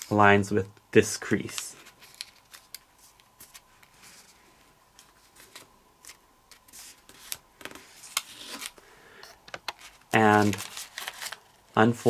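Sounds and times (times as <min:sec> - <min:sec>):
paper rustling and crinkling: 0:01.4 - 0:08.8, 0:09.4 - 0:12.0
sharp paper crackles: 0:09.7 - 0:12.0.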